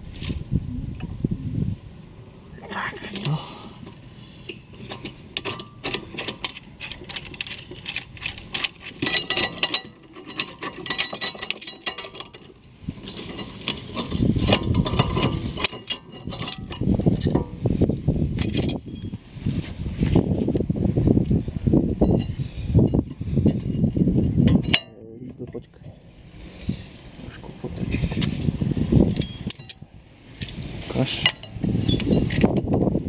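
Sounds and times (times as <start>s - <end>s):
small metal clicks and clinks: 3.1s - 17.5s, 18.4s - 19.2s, 29.1s - 29.8s
heavier knocking and rustling: 4.8s - 20.3s.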